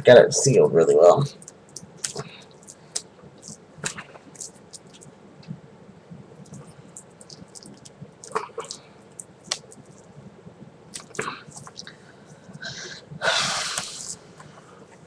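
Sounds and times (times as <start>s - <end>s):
plastic packaging crinkling: 6.4s - 10.1s.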